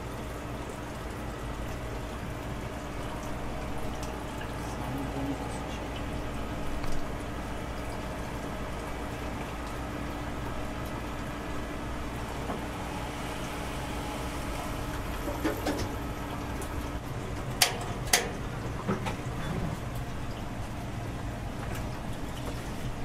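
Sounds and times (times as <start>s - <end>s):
low hum: 8.8s - 17.0s.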